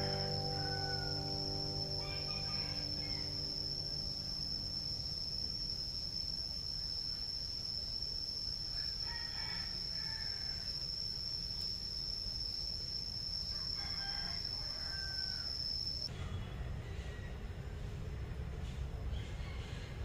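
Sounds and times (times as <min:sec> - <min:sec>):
rooster crowing faintly: 0:00.0 - 0:04.6, 0:08.7 - 0:10.7, 0:13.5 - 0:17.5, 0:19.1 - 0:20.0
high-pitched insect drone: 0:00.0 - 0:16.1.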